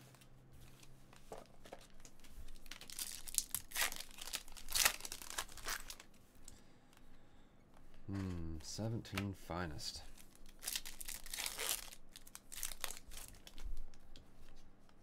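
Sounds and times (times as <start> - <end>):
packaging tearing and crinkling: 2.5 - 6.1, 10.2 - 13.9.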